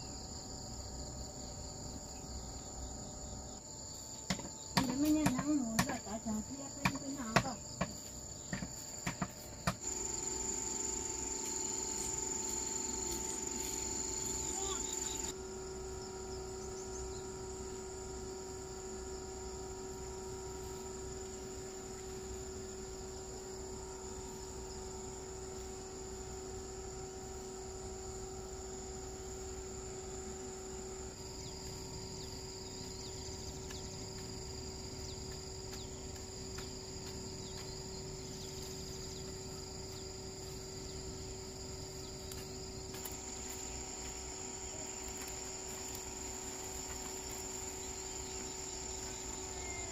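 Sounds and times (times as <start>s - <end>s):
insects chirring: 0.0s - 49.9s.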